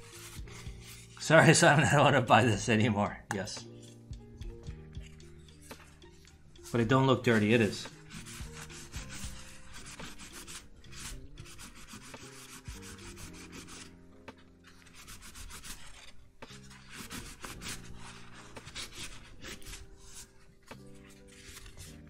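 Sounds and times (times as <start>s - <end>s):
faint background music: 0.0s - 22.0s
paper towel scrubbing metal plate: 6.6s - 13.9s.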